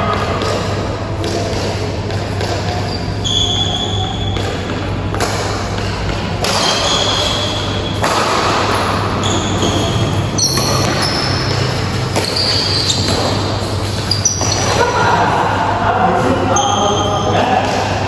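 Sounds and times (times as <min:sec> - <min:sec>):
rackets striking shuttlecock: 0:00.1 - 0:14.8, 0:17.5 - 0:18.0
shoe squeaks on court: 0:02.6 - 0:04.6, 0:06.4 - 0:08.0, 0:09.2 - 0:14.8.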